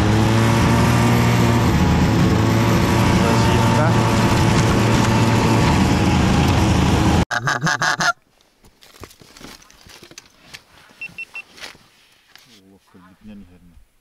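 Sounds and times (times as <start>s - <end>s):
snowmobile engine running: 0.0s - 7.2s
goose honks: 7.3s - 8.2s
faint rustles and clicks: 8.3s - 13.9s.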